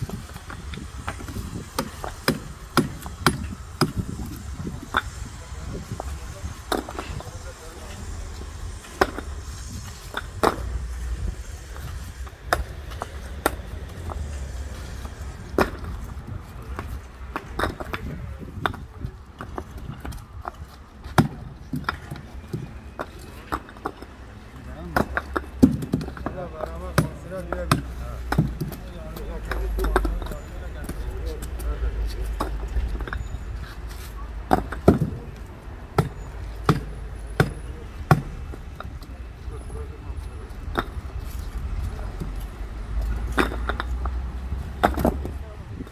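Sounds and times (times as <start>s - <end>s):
paving stones clacking: 0.0s - 45.9s.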